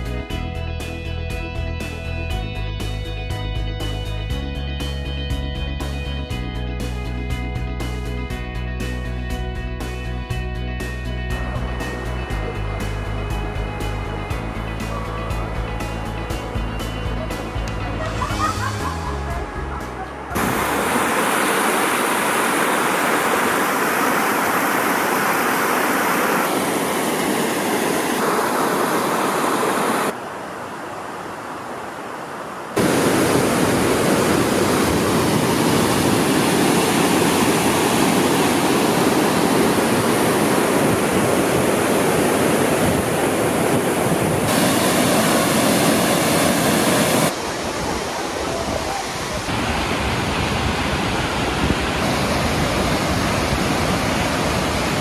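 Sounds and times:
waterfall rushing: 0:11.3 - 0:55.0.

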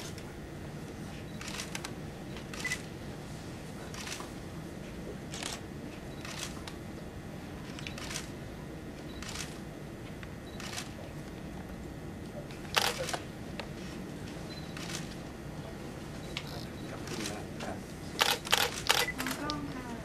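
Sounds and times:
low room hum: 0:00.0 - 0:20.0
camera shutters clicking: 0:05.3 - 0:05.6, 0:07.7 - 0:08.3, 0:12.7 - 0:13.2, 0:18.2 - 0:19.6.

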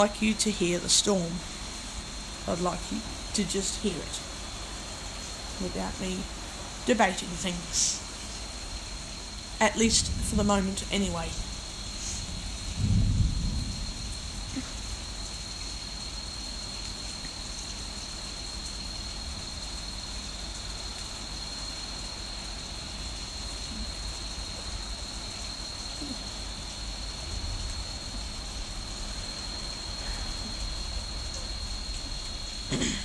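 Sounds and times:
faint high whine: 0:00.0 - 0:33.0
heavy rain falling: 0:00.0 - 0:33.0
low rumble of thunder: 0:08.6 - 0:17.0, 0:22.6 - 0:33.0.

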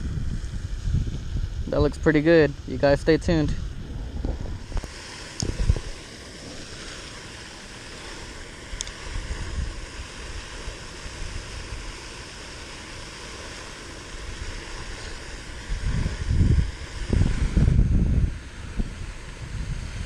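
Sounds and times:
steady rushing hiss: 0:00.0 - 0:20.0
wind rumbling on microphone: 0:00.0 - 0:20.0
faint tick: 0:08.8 - 0:09.0.

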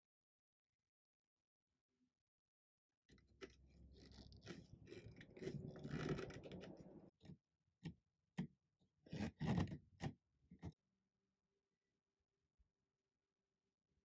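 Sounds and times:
hand scraping on wood: 0:03.4 - 0:07.1.

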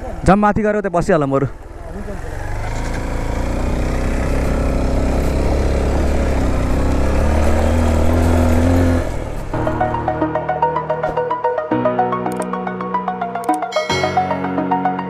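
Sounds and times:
motorcycle engine under load: 0:01.5 - 0:09.9
music: 0:09.6 - 0:15.0.

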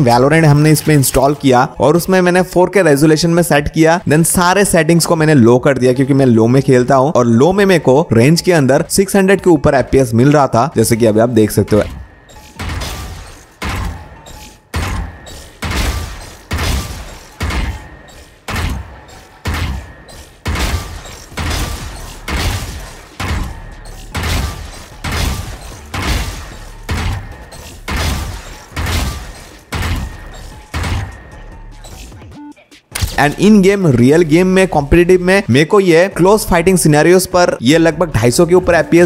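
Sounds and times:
video game rifle shots: 0:11.5 - 0:32.2.

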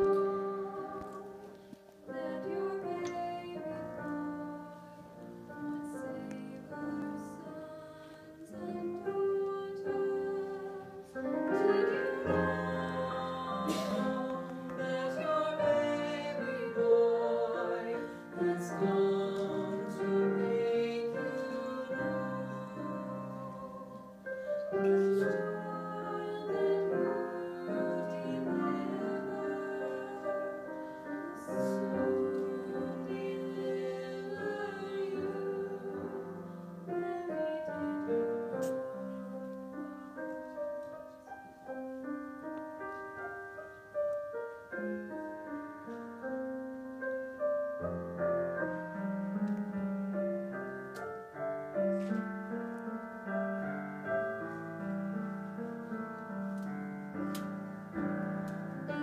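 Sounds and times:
voices singing duet: 0:00.0 - 0:05.2, 0:05.8 - 0:38.8
piano accompaniment: 0:00.0 - 0:59.0.

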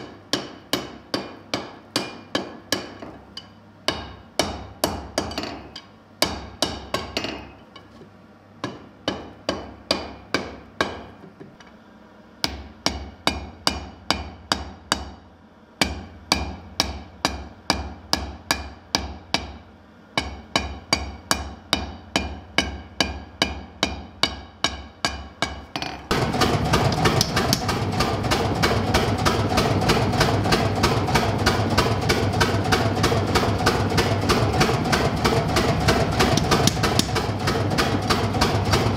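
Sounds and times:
hammer striking steel on anvil: 0:00.0 - 0:07.9, 0:08.6 - 0:11.2, 0:12.4 - 0:15.2, 0:15.8 - 0:19.6, 0:20.2 - 0:29.1
power hammer pounding: 0:20.2 - 0:38.9.

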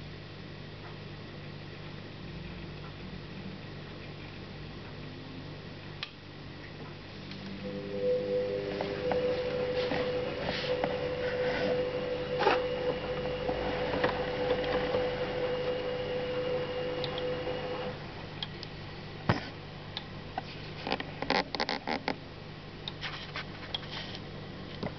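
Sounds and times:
espresso machine humming: 0:07.6 - 0:18.2.

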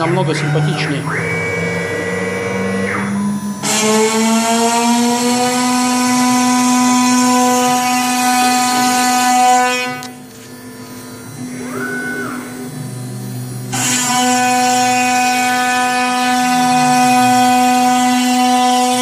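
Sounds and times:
cutting noise: 0:00.0 - 0:10.3, 0:10.9 - 0:19.0
router spindle whine: 0:00.0 - 0:19.0.

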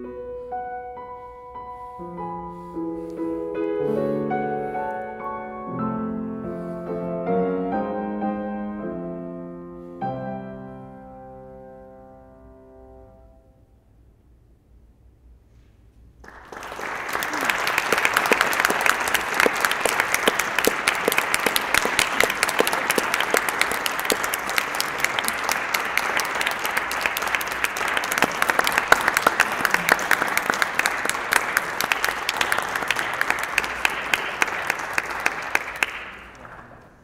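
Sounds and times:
audience applauding: 0:16.2 - 0:37.0.

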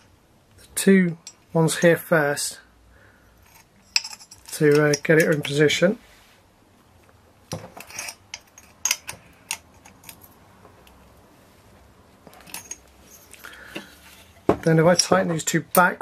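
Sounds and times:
hand tool clinking on metal: 0:03.4 - 0:05.6, 0:12.3 - 0:15.9.

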